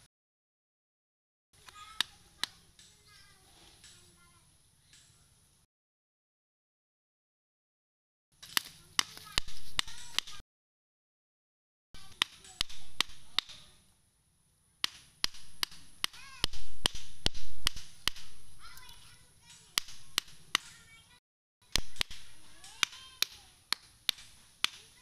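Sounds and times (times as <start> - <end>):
stakes hammered into soil: 12.0 - 13.8, 14.8 - 19.0, 19.6 - 20.8, 21.7 - 25.0.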